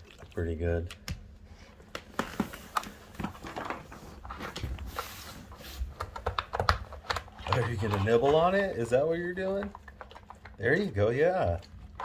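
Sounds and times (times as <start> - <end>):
plastic puzzle clicks and knocks: 6.0 - 8.6.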